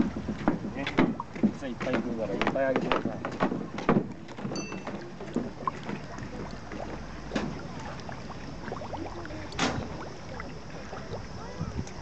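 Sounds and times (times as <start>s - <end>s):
water splashes: 0.0s - 12.0s
fish gulping at water surface: 3.0s - 12.0s.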